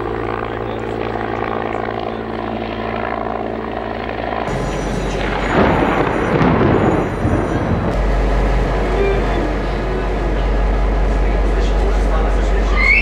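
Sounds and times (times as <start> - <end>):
helicopter engine and rotor: 0.0 - 13.0
heavy rain: 4.5 - 11.8
thunder rumble: 4.5 - 12.6.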